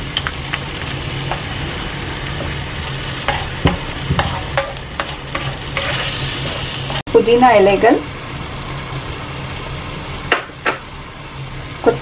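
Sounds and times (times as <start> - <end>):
onion sizzling in butter: 0.0 - 12.0
wooden spoon scraping a pan: 2.4 - 7.0.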